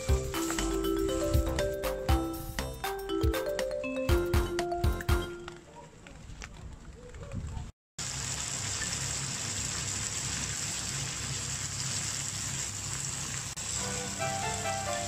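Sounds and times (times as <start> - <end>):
background music: 0.0 - 5.5, 13.8 - 15.0
food sizzling in a frying pan: 8.0 - 15.0.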